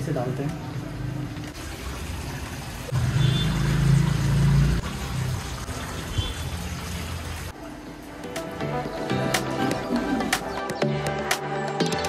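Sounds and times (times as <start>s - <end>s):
water pouring and trickling: 0.4s - 8.3s.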